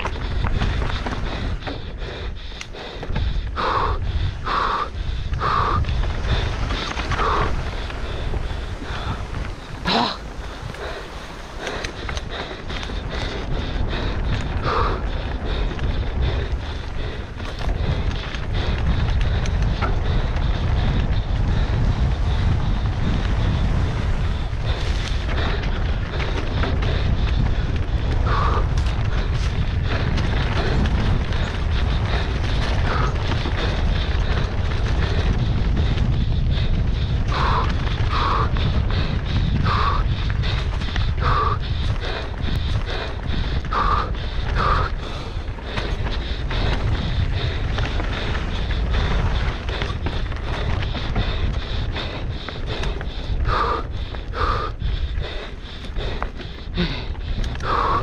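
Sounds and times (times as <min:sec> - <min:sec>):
bike tyres over dirt and rocks: 0:00.0 - 0:58.0
low rumble: 0:00.0 - 0:58.0
wind buffeting microphone: 0:00.0 - 0:58.0.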